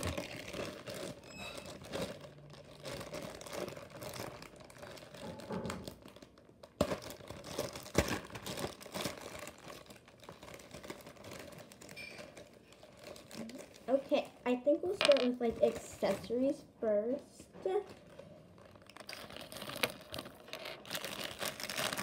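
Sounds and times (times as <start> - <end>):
plastic bag crinkling: 0.0 - 16.6, 17.9 - 22.0.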